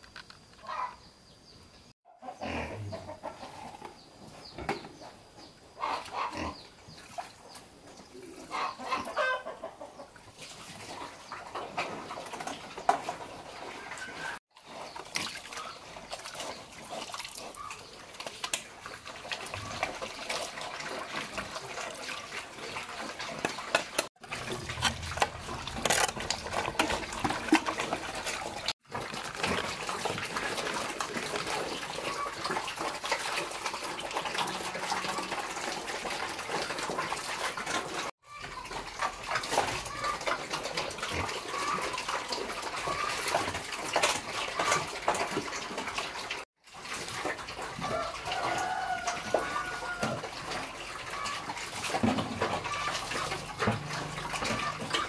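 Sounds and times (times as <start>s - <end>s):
pigs slurping and chewing: 2.4s - 55.0s
slop sloshing from a bucket: 10.2s - 55.0s.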